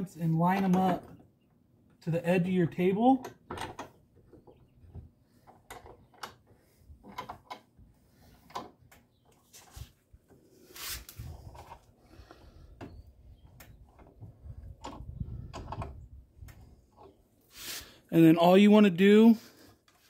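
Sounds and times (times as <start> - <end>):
clamps clicking and knocking: 3.2 - 4.5.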